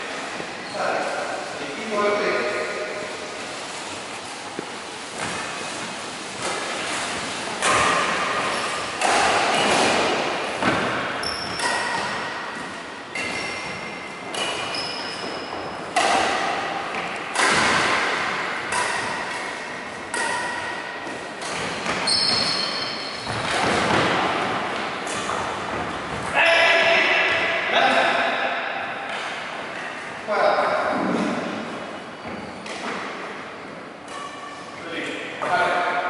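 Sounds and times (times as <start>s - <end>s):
racket striking shuttlecock: 7.6s - 15.3s, 15.9s - 25.6s, 34.0s - 34.5s
shoe squeaks on wooden court: 11.2s - 12.3s, 13.1s - 15.8s, 21.5s - 23.8s, 32.1s - 32.7s.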